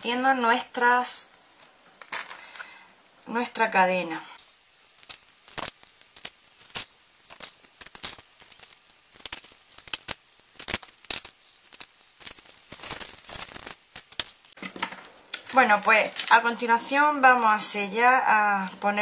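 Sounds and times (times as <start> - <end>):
plastic bag crinkling: 4.8 - 16.8
metal chain links clinking: 12.2 - 13.7.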